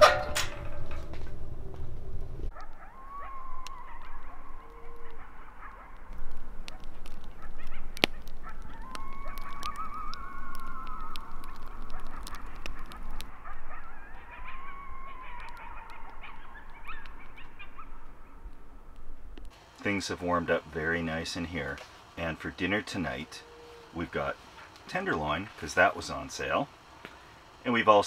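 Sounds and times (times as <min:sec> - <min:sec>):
animals wavering cries: 0:00.0 - 0:19.3, 0:22.6 - 0:24.4
short broken animal calls: 0:02.6 - 0:18.6
sharp clicks: 0:03.6 - 0:14.5.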